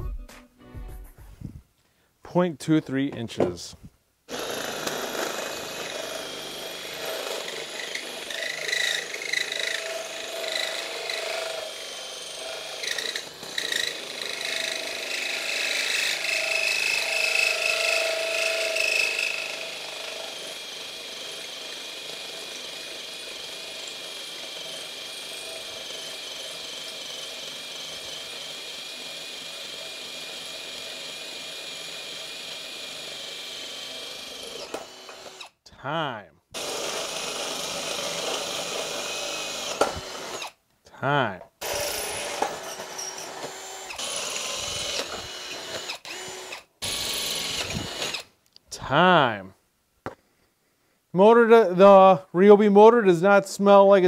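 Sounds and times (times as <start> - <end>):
drill motor whining: 4.3 - 35.6, 36.6 - 40.6, 41.6 - 48.3
hole saw grinding metal: 4.3 - 35.6, 36.6 - 40.6, 41.6 - 48.3.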